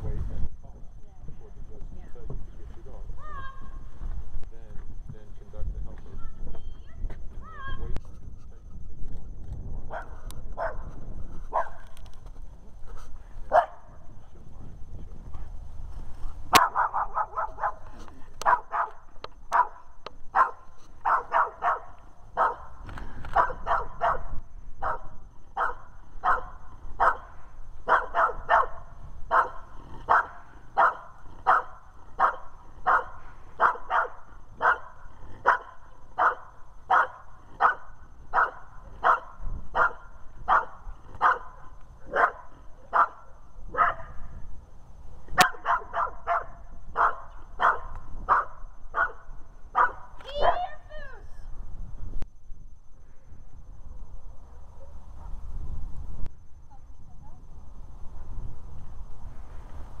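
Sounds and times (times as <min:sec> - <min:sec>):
dog barking: 0:09.9 - 0:10.9, 0:11.5 - 0:11.9, 0:13.5 - 0:13.9, 0:16.5 - 0:22.7, 0:23.4 - 0:44.2, 0:45.4 - 0:50.1.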